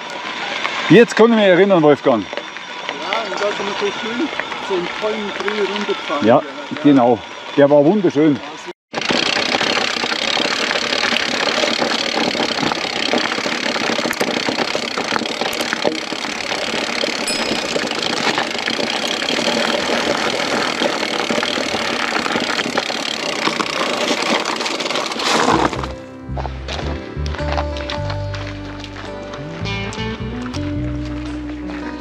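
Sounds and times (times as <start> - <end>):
bicycle tyres rolling on rough trail: 0.0 - 32.0
bike frame rattling: 9.0 - 26.0.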